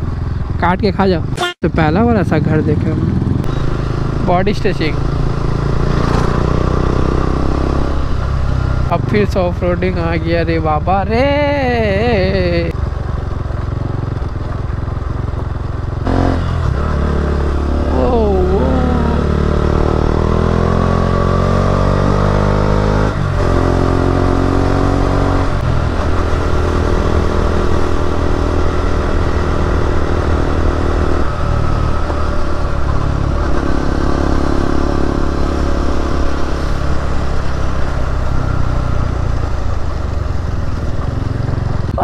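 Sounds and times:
motorcycle engine accelerating: 0.0 - 42.0.

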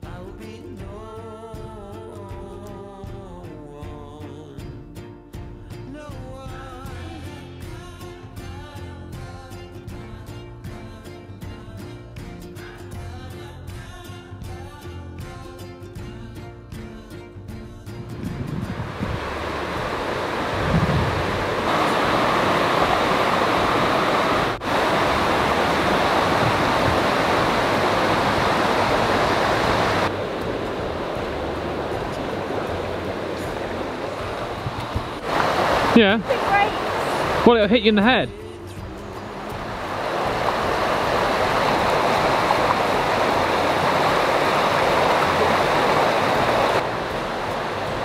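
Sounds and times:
stream rushing over rapids: 18.4 - 48.0.

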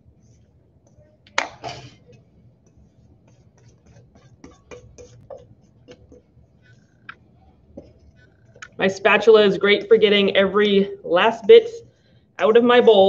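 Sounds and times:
spatula tapping metal bowl: 2.7 - 6.3.

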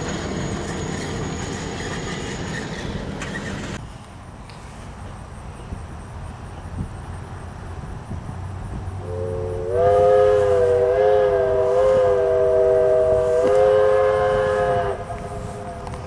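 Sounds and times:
steam locomotive chime whistle: 9.0 - 16.0.

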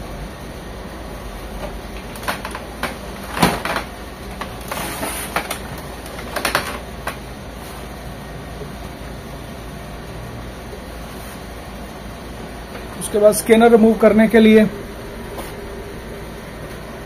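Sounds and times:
plastic cover clicks and knocks: 5.3 - 7.2.

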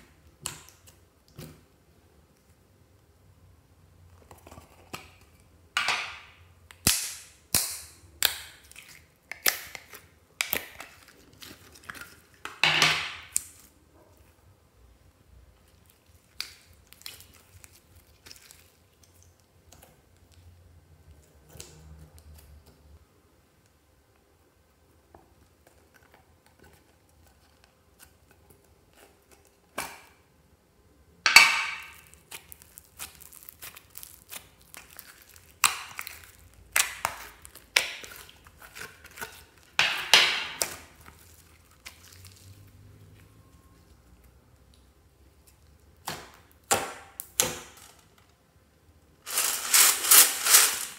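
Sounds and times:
slime crackling and crinkling: 6.7 - 14.3, 15.6 - 20.4, 31.6 - 48.2, 49.2 - 50.9.

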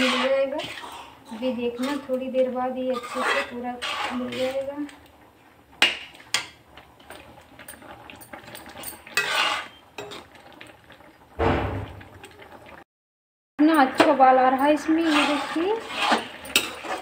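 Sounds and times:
spoon scraping metal pot: 0.0 - 4.7, 5.8 - 10.3, 14.5 - 17.0.

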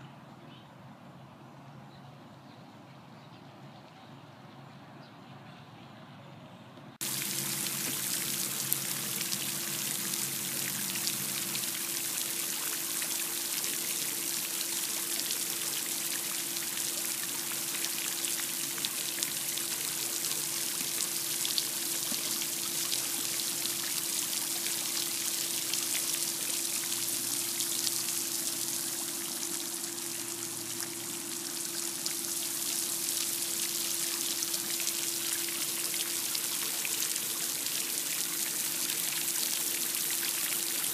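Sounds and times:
fountain spray splashing: 7.0 - 40.9
steady hum: 26.3 - 36.3.

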